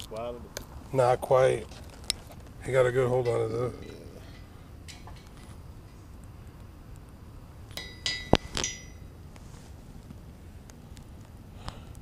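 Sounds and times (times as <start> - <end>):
metal fishing tackle clinking: 7.8 - 9.1.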